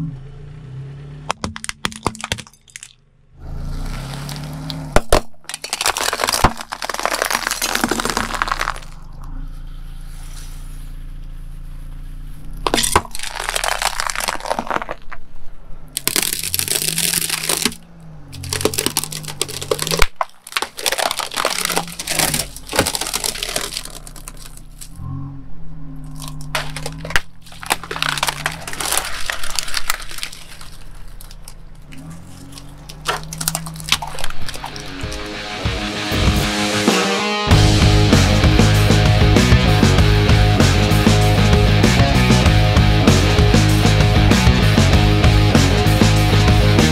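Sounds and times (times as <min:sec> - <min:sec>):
car engine humming: 0:00.0 - 0:05.2, 0:05.8 - 0:46.9
glass tubes cracking and crunching: 0:01.3 - 0:03.0, 0:03.9 - 0:09.2, 0:12.6 - 0:15.3, 0:15.9 - 0:25.0, 0:26.0 - 0:35.4
water balloons bursting: 0:03.9 - 0:09.2, 0:12.6 - 0:15.1, 0:16.0 - 0:17.8, 0:18.4 - 0:24.9, 0:26.2 - 0:35.4
wicker basket splintering: 0:16.0 - 0:17.8, 0:18.4 - 0:24.9, 0:26.2 - 0:35.2.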